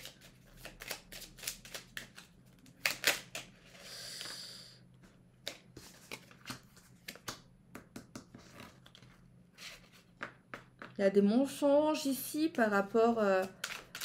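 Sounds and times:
cards snapping and tapping: 5.4 - 8.4.

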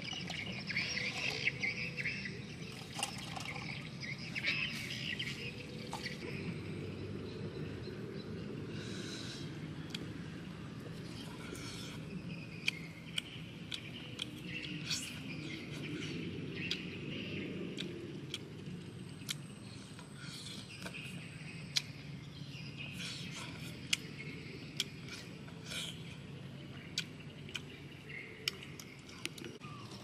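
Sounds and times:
birds chirping: 0.0 - 30.0
eating and chewing clicks: 9.7 - 22.2, 22.8 - 30.0.

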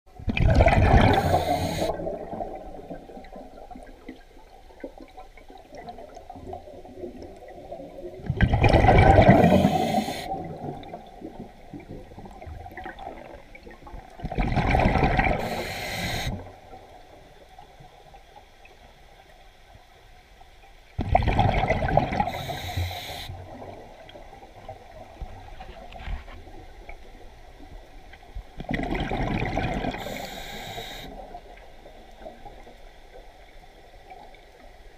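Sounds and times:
exhaled air bubbling underwater: 0.1 - 18.9, 20.9 - 25.4, 26.4 - 34.9
regulator inhalation hiss: 1.1 - 2.1, 9.4 - 10.4, 15.4 - 16.4, 22.3 - 23.4, 30.0 - 31.3.

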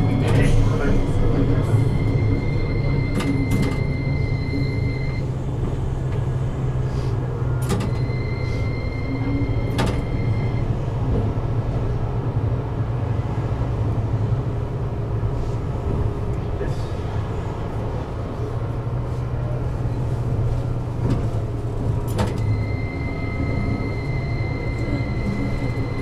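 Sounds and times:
tram running low hum: 0.0 - 26.0
thin high ringing tone: 22.4 - 26.0.

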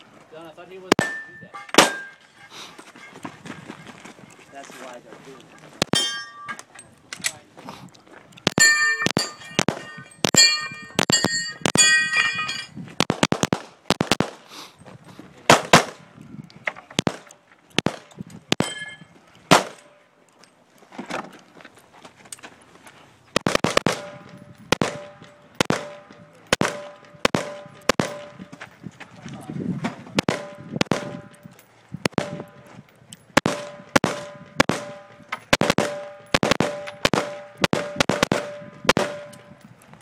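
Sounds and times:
gunshots: 0.9 - 2.1, 8.5 - 11.9, 13.0 - 14.5, 15.5 - 16.0, 17.0 - 18.7, 19.5 - 19.9, 23.4 - 28.4, 30.2 - 31.4, 32.0 - 32.7, 33.4 - 39.4
steel target ringing: 1.0 - 2.5, 5.9 - 6.7, 8.6 - 12.7, 18.6 - 19.1.

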